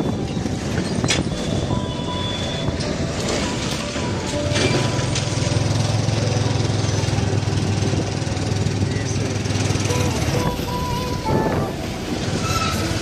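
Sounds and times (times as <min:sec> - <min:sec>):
road and wind noise: 0:00.0 - 0:13.0
motorcycle engine running: 0:04.5 - 0:11.2.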